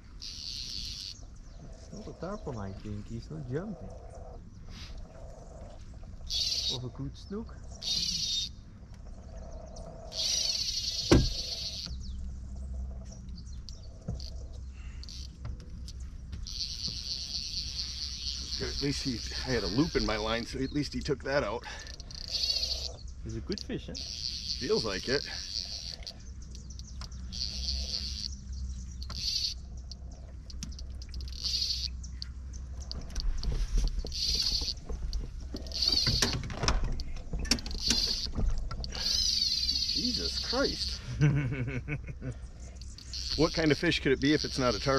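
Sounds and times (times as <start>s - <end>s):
birds chirping: 0.0s - 44.9s
fishing reel drag buzzing: 0.2s - 1.2s, 10.1s - 11.8s, 15.0s - 15.4s, 16.5s - 20.4s, 21.8s - 23.0s, 24.0s - 28.4s, 29.0s - 29.6s, 30.4s - 32.0s, 34.1s - 34.8s, 35.6s - 36.3s, 37.7s - 41.0s, 43.0s - 44.9s
loud thump: 11.1s - 11.4s.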